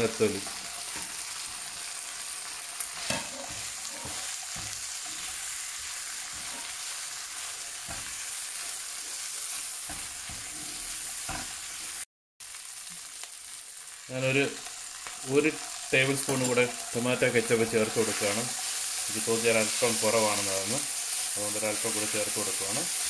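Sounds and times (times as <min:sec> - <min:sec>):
food sizzling in frying pan: 0:00.0 - 0:23.0
utensil knocking and scraping pan: 0:03.0 - 0:05.3.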